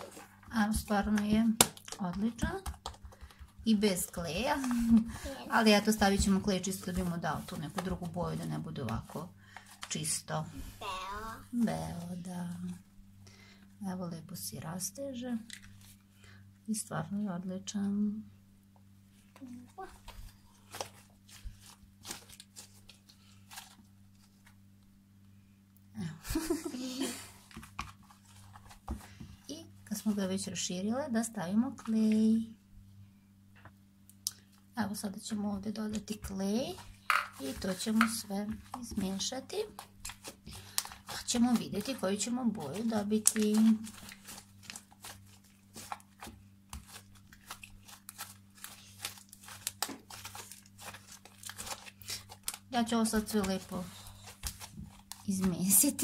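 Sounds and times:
slime crackling and squelching: 36.4s - 56.0s.

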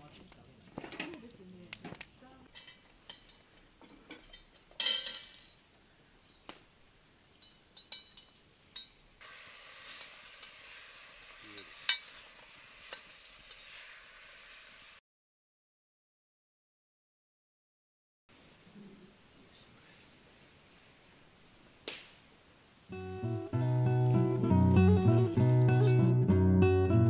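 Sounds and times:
food sizzling in a pan: 2.5s - 5.6s, 6.3s - 15.0s, 18.4s - 26.1s.

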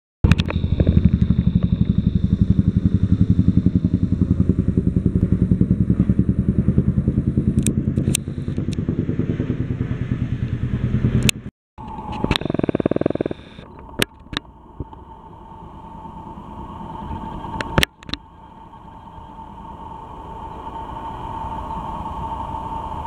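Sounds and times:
helicopter rotor blades beating: 0.2s - 21.1s
deep engine drone: 0.2s - 23.0s
sharp clicks: 11.2s - 14.4s.

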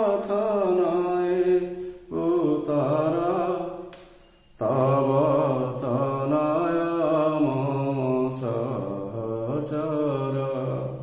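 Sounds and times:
short breaths: 1.8s - 2.1s.

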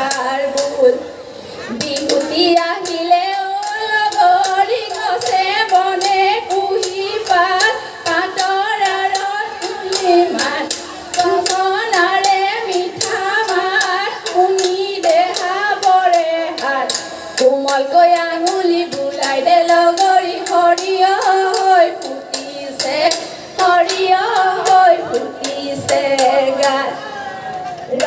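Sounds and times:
women singing ornamented notes: 0.0s - 28.0s.

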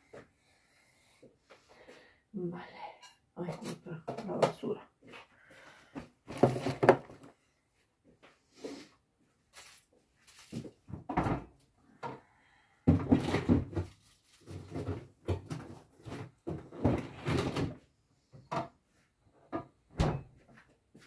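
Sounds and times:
knocks and clatter of objects: 3.5s - 4.8s, 6.0s - 7.3s, 10.3s - 12.2s, 12.8s - 17.8s.

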